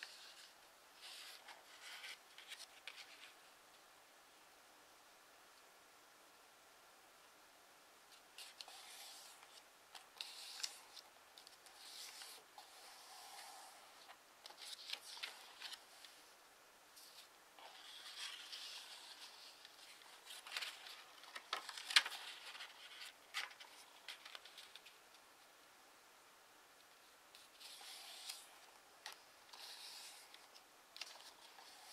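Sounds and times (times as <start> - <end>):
paper crackling as folded: 0.0 - 3.4, 8.2 - 16.2, 17.0 - 25.0, 27.3 - 31.9
paper rustling and crinkling: 0.0 - 3.4, 8.2 - 16.2, 17.0 - 25.0, 27.4 - 31.9.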